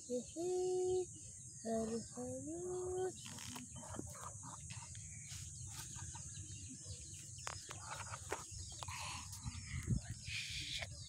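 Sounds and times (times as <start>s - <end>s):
faint poultry calls: 1.7s - 6.5s.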